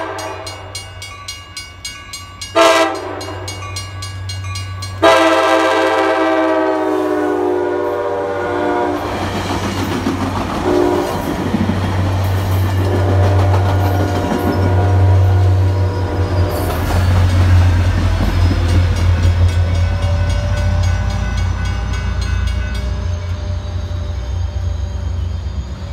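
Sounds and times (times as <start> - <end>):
train horn: 0.0 - 0.9, 2.5 - 3.8, 5.0 - 9.3, 10.6 - 11.3, 12.8 - 16.8
crossing bell ringing: 0.0 - 6.1, 10.8 - 25.9
diesel locomotive droning: 0.0 - 25.9
train rumbling and clattering past: 0.0 - 25.9.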